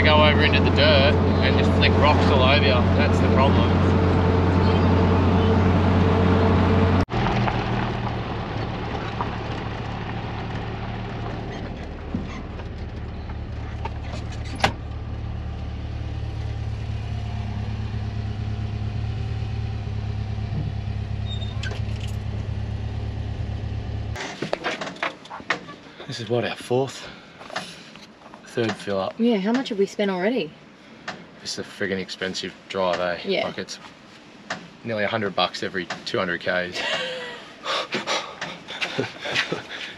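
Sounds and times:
engine idling: 0.0s - 24.2s
van engine running: 0.0s - 24.2s.

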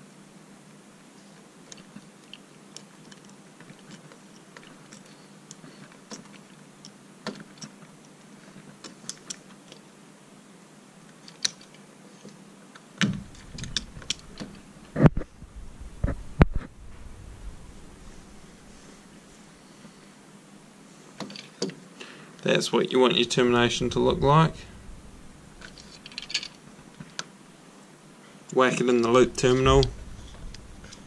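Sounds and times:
knocks and handling noises: 11.1s - 20.0s, 21.1s - 21.8s, 25.6s - 27.2s
pliers clicking on wires: 13.0s - 14.6s.

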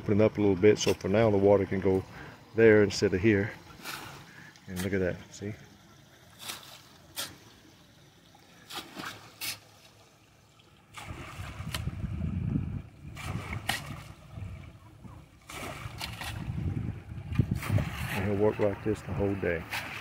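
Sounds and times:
running water trickle: 0.0s - 20.0s
hoe chopping into wet mud: 13.2s - 14.1s, 17.3s - 18.3s.

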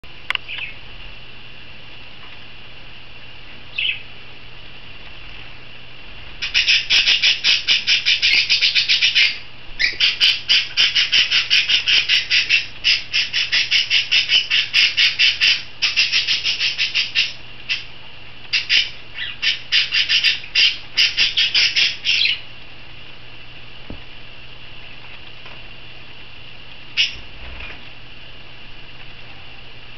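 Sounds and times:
parrots squawking shrilly: 6.4s - 17.9s, 18.5s - 22.4s, 27.0s - 27.2s.

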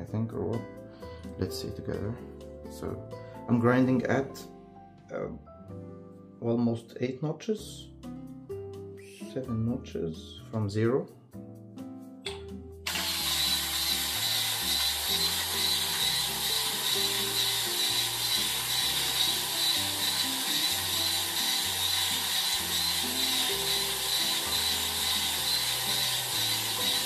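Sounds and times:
background music: 0.0s - 27.0s
electric coffee grinder running: 12.8s - 27.0s.

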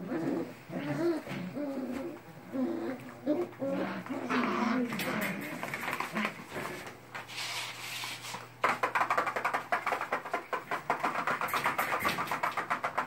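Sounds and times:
puppy claws clicking on floor: 3.0s - 13.0s.

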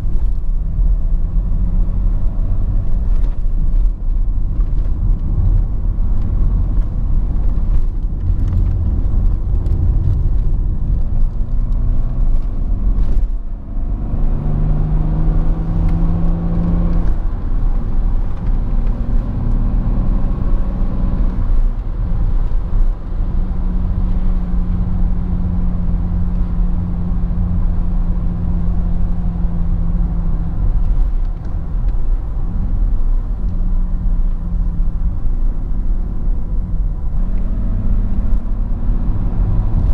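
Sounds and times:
road and tyre noise: 0.0s - 39.9s.

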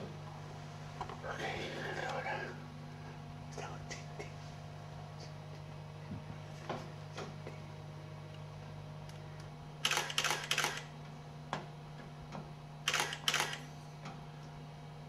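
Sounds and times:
camera shutter clicks: 9.8s - 10.9s, 12.9s - 13.7s.

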